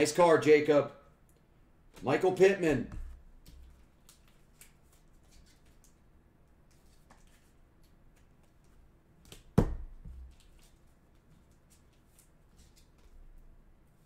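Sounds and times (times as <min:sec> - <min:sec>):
plastic sleeves rustling: 0:03.1 - 0:08.9, 0:10.1 - 0:14.0.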